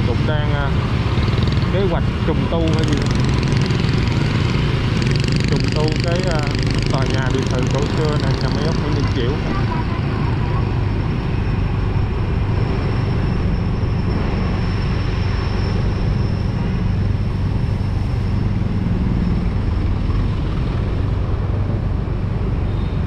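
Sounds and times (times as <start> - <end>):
motorbike engine drone: 0.0 - 23.0
road and wind noise: 0.0 - 23.0.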